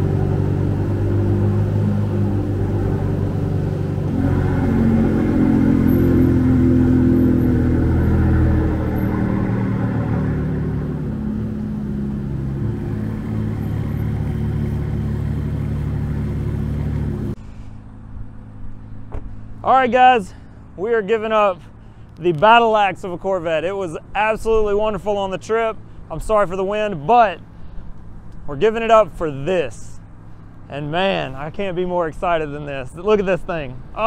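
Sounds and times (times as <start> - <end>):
car engine revving pulling away: 0.0 - 17.7.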